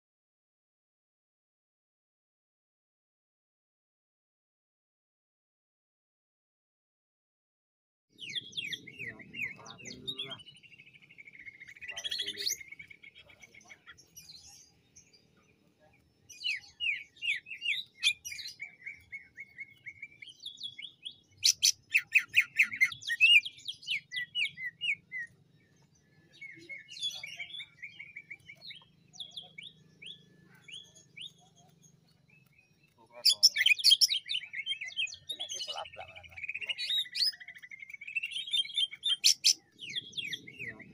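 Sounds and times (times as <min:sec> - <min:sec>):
bird chirping and trilling: 0:08.2 - 0:40.9.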